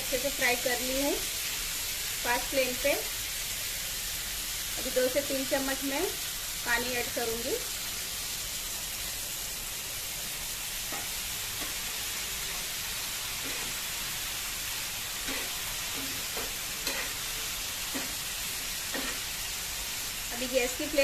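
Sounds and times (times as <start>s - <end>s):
liver sizzling on griddle: 0.0s - 21.0s
spatula scraping griddle: 13.4s - 13.9s, 15.2s - 19.4s.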